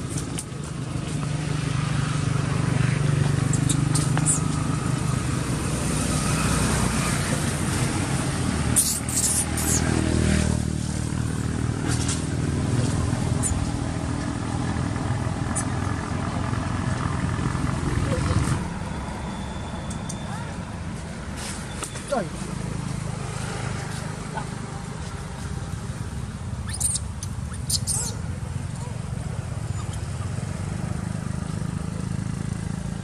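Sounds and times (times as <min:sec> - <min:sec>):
vehicle engine running: 0:00.0 - 0:18.9.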